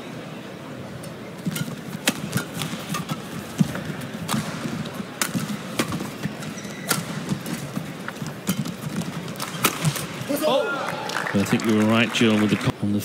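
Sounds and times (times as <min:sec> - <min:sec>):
rackets striking shuttlecock: 0:01.4 - 0:10.3.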